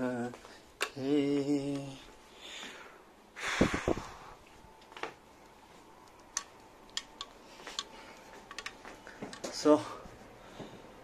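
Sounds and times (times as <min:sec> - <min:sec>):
sharp clicks: 0:06.0 - 0:07.9.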